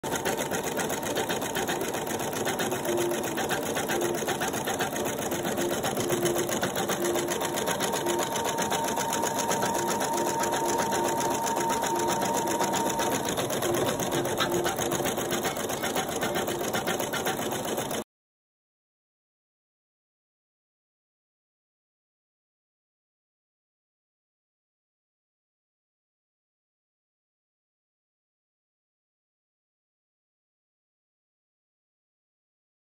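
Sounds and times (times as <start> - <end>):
embroidery machine needle rattle: 0.1 - 18.0.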